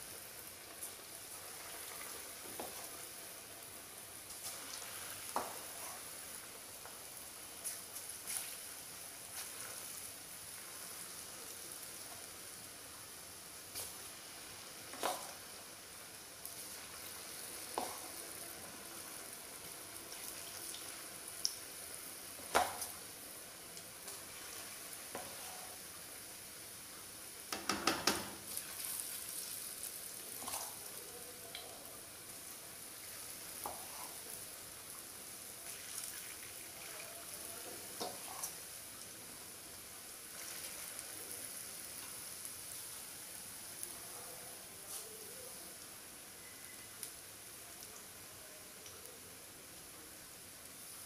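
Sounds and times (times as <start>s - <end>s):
food deep-frying in oil: 0.0s - 51.0s
sharp pops in frying oil: 5.3s - 5.6s, 14.9s - 15.4s, 17.7s - 18.0s, 22.4s - 23.0s, 27.5s - 28.6s.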